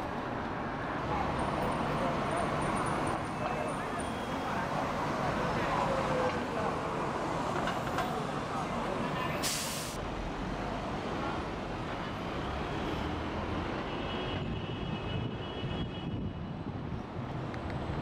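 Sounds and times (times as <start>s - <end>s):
city traffic rumble: 0.0s - 18.0s
short burst of hiss: 9.4s - 10.0s.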